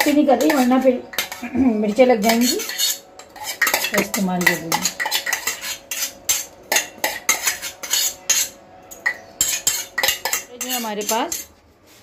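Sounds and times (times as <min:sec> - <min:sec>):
metal spoon clinking on steel cup: 0:00.0 - 0:11.5.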